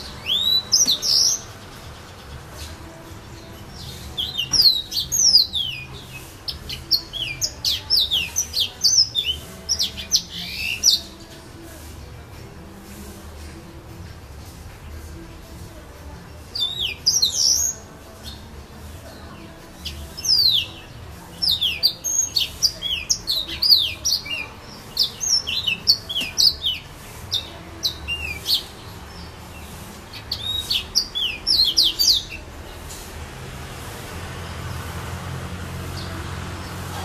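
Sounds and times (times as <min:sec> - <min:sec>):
canary singing whistled notes: 0:00.0 - 0:01.5, 0:30.1 - 0:32.4.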